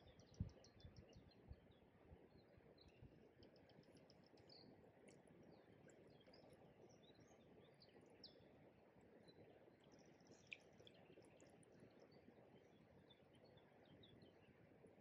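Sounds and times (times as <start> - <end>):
small birds chirping: 0.0 - 14.6.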